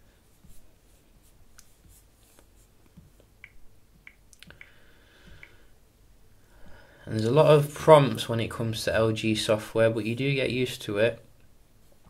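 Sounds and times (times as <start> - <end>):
fingers tapping touchscreen: 1.5 - 5.6.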